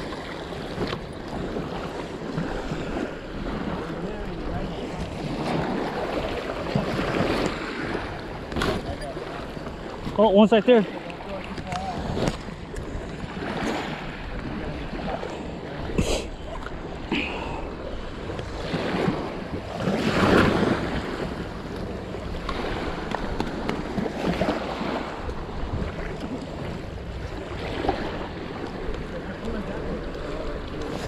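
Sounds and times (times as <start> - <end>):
waves lapping on gravel shore: 0.0 - 16.0, 16.8 - 31.0
wind buffeting microphone: 17.7 - 31.0.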